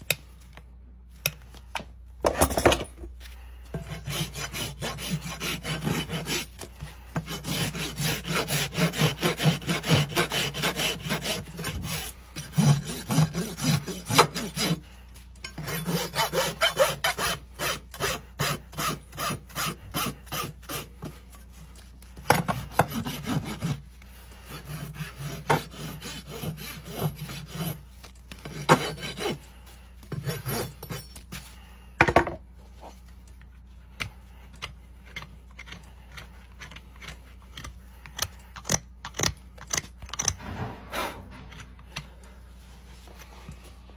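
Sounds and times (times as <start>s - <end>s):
rasp filing a hoof: 3.7s - 21.5s, 22.2s - 31.5s
sharp knock: 40.4s - 41.8s.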